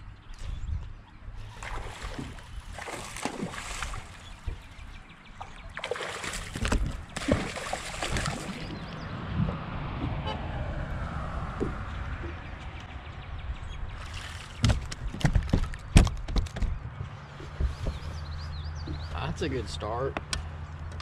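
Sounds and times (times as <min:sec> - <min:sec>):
wind buffeting microphone: 0:00.3 - 0:05.7, 0:06.3 - 0:19.2
vehicle passing: 0:07.5 - 0:14.5.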